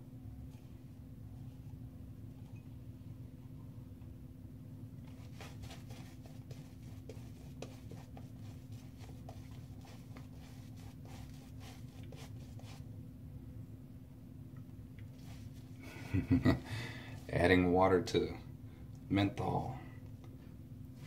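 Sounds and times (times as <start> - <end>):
shaving brush scrubbing lather: 5.1 - 12.8, 15.2 - 15.8.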